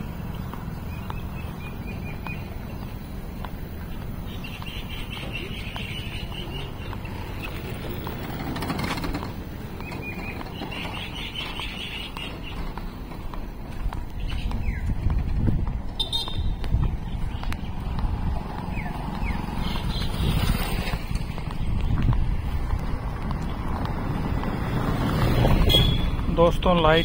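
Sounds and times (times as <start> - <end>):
low street rumble: 0.0 - 27.0.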